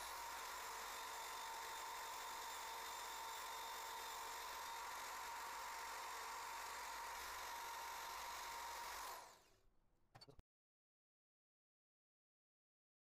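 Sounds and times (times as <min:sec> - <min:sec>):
drill with wire brush whining: 0:00.0 - 0:09.6.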